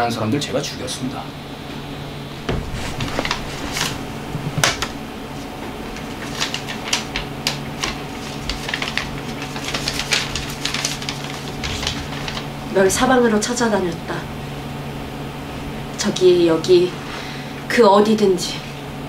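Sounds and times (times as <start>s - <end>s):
steady low hum: 0.0s - 19.0s
paper crinkling and rustling: 2.4s - 13.0s.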